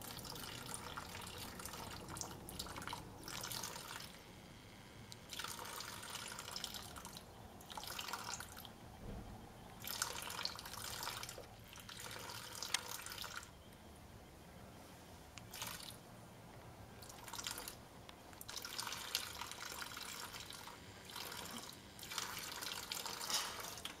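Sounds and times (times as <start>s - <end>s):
water trickling into a basin: 0.0s - 4.4s, 5.1s - 8.8s, 9.7s - 13.6s, 15.4s - 16.0s, 17.0s - 17.8s, 18.4s - 24.0s.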